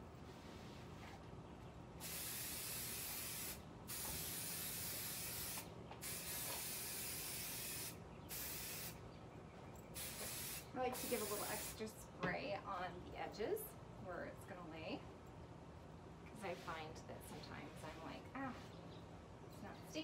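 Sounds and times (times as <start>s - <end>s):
aerosol can hissing: 2.0s - 9.0s, 10.0s - 11.8s.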